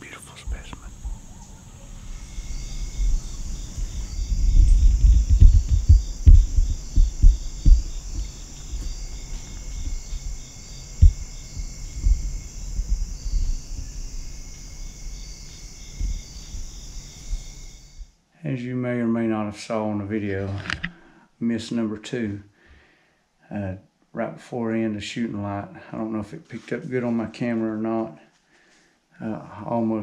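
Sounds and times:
insects trilling: 0.0 - 18.1
pulsing insect chirp: 0.0 - 18.2
low thumps and rumble: 1.9 - 18.0.

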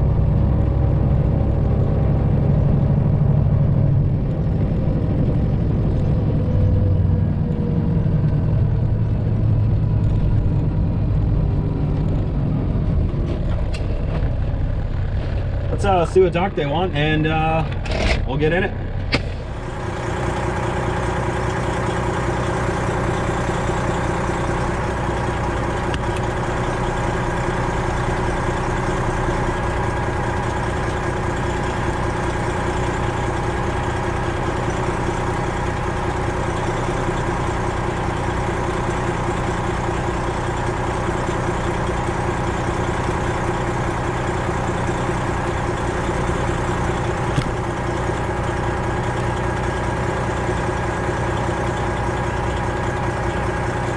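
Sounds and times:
truck diesel engine idling: 0.0 - 53.9.

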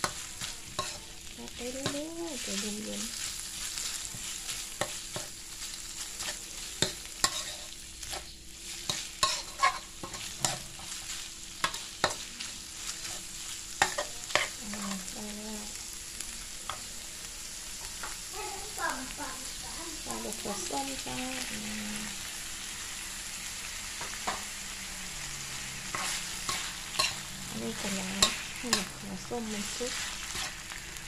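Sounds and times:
metal spatula scraping a wok: 0.0 - 2.1, 6.0 - 15.0, 25.7 - 30.9
meat sizzling in a wok: 0.0 - 31.0.

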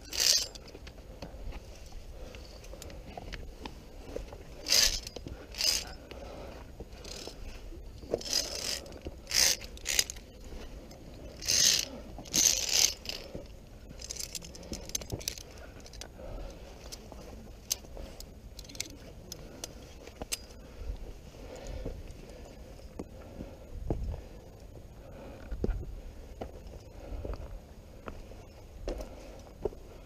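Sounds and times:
metal clicks and clinks: 0.0 - 1.0, 4.6 - 6.1, 8.1 - 13.3, 18.6 - 20.6
carabiners scraping along steel cable: 0.0 - 23.2.

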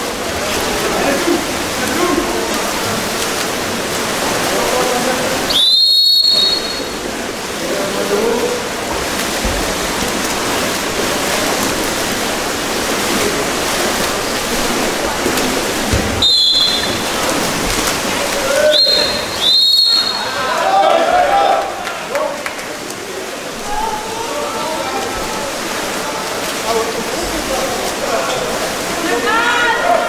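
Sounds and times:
splashing pool water: 0.0 - 30.0
voices: 0.0 - 30.0
referee's whistle blast: 5.5 - 7.0, 16.2 - 17.1, 18.7 - 20.4.

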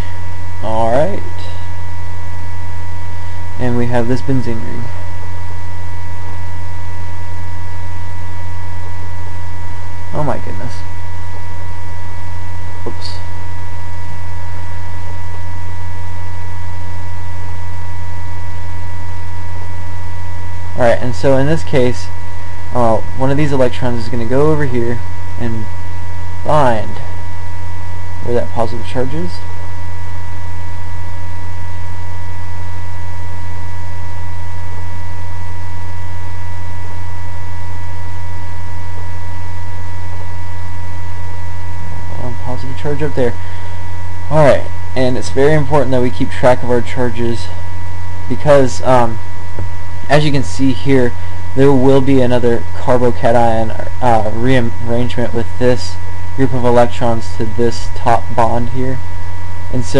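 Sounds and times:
electrical mains hum: 0.0 - 59.9
faint high steady tones: 0.0 - 59.9.

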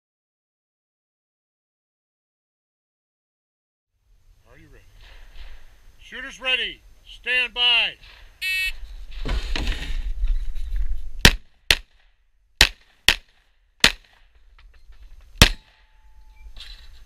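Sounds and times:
rustling: 4.4 - 7.0, 8.0 - 11.2
shot timer beep: 8.4 - 8.8
pistol shots: 11.2 - 12.0, 12.6 - 14.2, 15.4 - 15.8.

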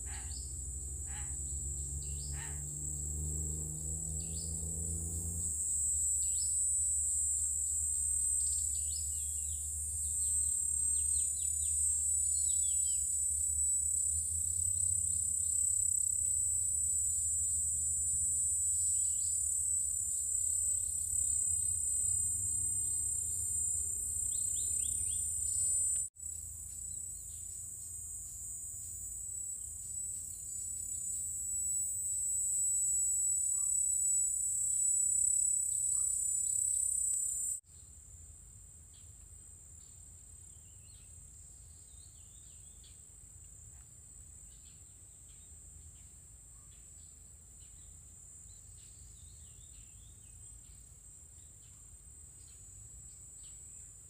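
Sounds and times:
bird chirps: 0.0 - 0.5, 24.3 - 25.7
insects droning: 0.0 - 54.0.

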